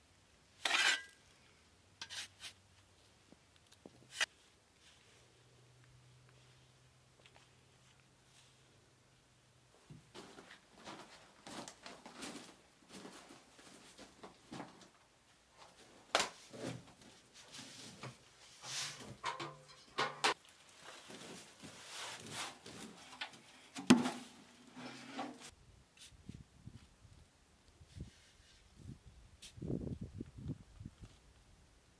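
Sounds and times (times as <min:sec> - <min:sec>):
metal bucket handling: 0:19.0 - 0:20.4, 0:22.4 - 0:25.5.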